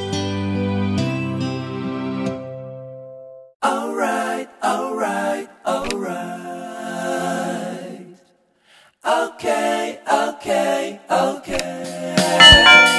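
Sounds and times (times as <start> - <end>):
person singing: 3.6 - 8.1, 9.1 - 12.9.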